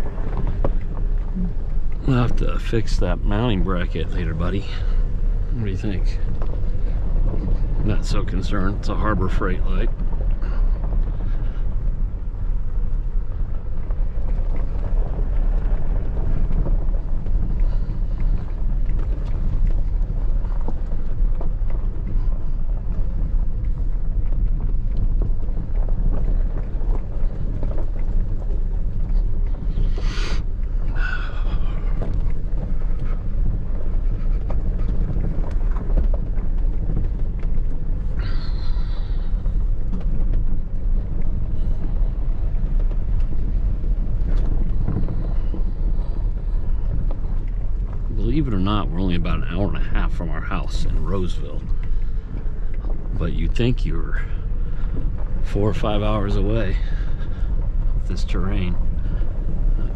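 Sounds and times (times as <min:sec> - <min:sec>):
truck engine and tyre rumble: 0:00.0 - 0:59.9.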